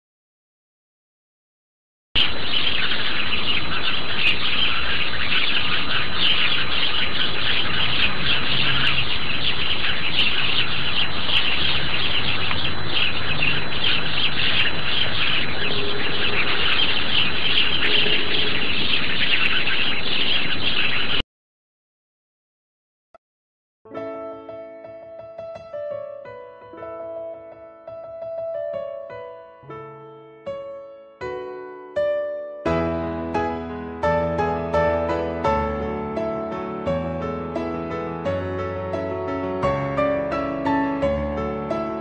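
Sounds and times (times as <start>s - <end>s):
many birds chirping and twittering: 2.2s - 21.2s, 32.7s - 42.0s.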